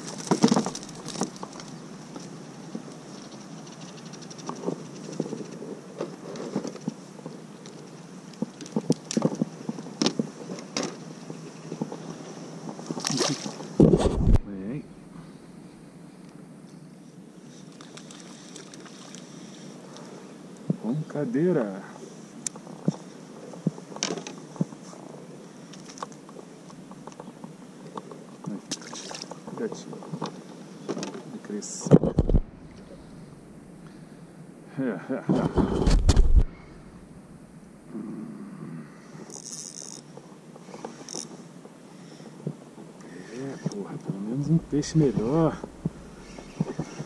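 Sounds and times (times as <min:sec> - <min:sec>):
hiss of wind and water: 0:00.0 - 0:31.9, 0:36.3 - 0:47.0
creaking: 0:39.2 - 0:41.5, 0:43.0 - 0:47.0.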